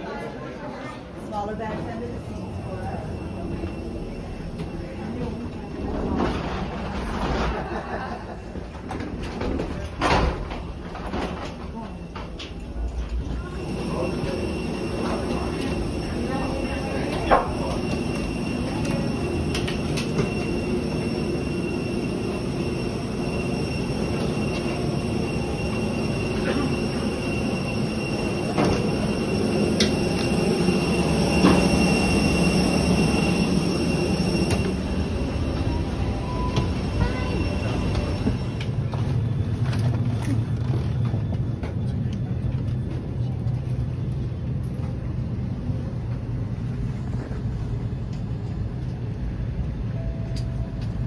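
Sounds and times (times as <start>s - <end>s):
train rumble: 0.0s - 51.0s
high electric whine: 13.2s - 40.0s.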